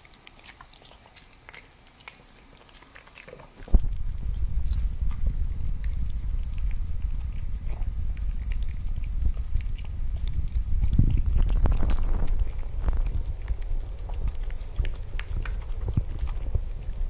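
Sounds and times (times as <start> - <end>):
dog chewing and licking: 0.0 - 17.0
low rumble: 3.7 - 17.0.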